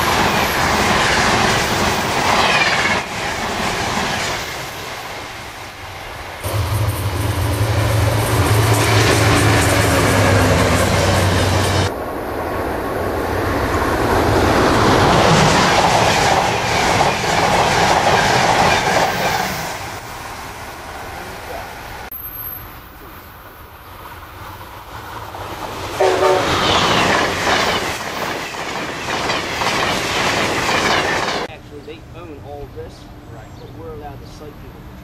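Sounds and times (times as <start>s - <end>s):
train rushing past: 0.0s - 35.0s
train horn blast: 6.4s - 11.9s, 26.0s - 26.8s.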